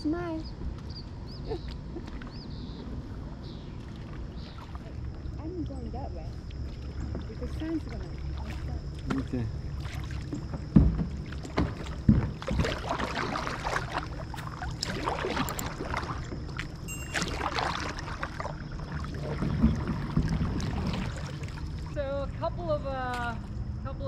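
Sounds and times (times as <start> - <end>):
water lapping at plastic hull: 0.7 - 22.1
paddle splashing in water: 2.0 - 22.0
sharp knocks: 10.7 - 12.6.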